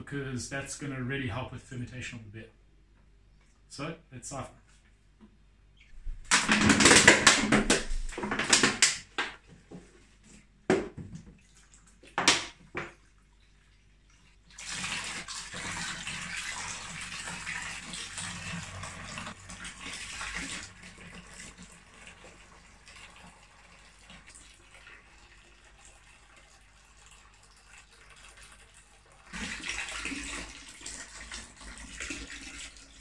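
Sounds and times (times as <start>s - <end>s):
liquid splashing into bucket: 6.0s - 9.4s, 14.1s - 26.6s, 27.2s - 33.0s.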